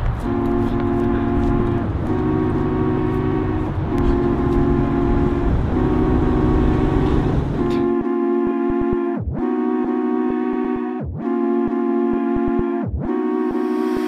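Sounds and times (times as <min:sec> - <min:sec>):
steady low rumble: 0:00.0 - 0:09.4
sustained music chord: 0:00.0 - 0:14.0.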